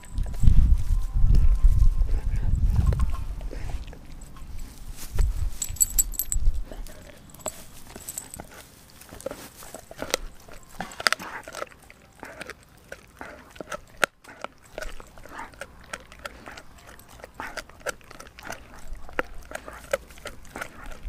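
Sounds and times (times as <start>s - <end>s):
teeth clicking on bone: 5.6s - 8.4s, 9.2s - 21.0s
dog gnawing bone: 5.6s - 21.0s.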